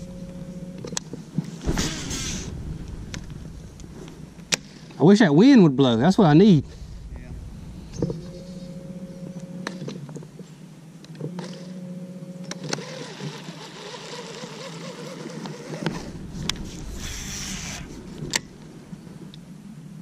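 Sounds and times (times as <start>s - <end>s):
electric trolling motor hum: 0.0s - 1.4s, 7.9s - 10.1s, 11.2s - 18.3s
motor whine: 0.0s - 4.5s, 6.7s - 10.3s
brief rush of noise: 1.6s - 5.0s, 6.4s - 9.4s.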